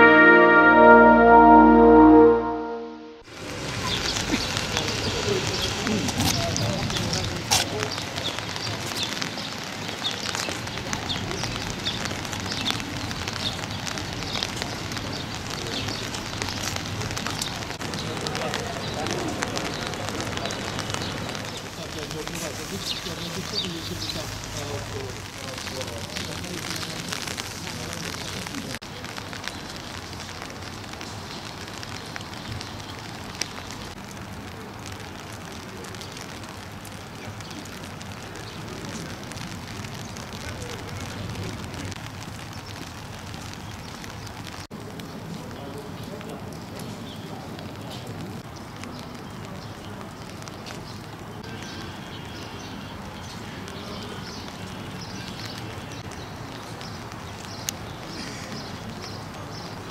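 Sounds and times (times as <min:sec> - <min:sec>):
short high chirps: 0:00.0 - 0:03.2
light rain hiss: 0:03.3 - 0:59.9.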